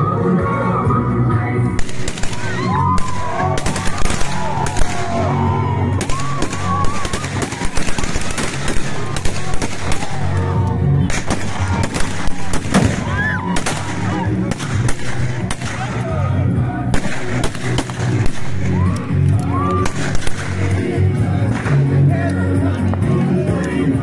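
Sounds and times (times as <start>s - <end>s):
rifle gunshots and bursts: 1.8s - 5.3s, 6.0s - 10.4s, 11.0s - 16.0s, 16.9s - 18.8s, 19.8s - 20.8s.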